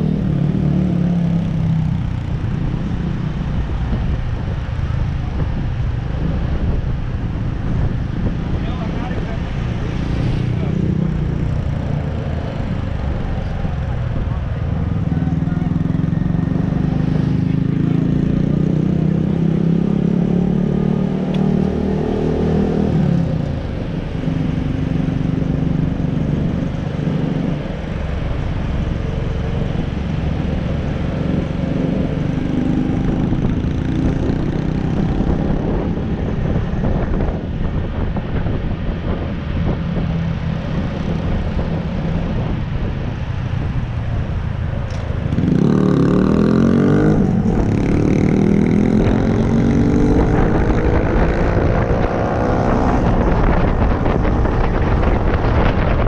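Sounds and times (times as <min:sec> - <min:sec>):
wind rumble on microphone: 0:00.0 - 0:56.0.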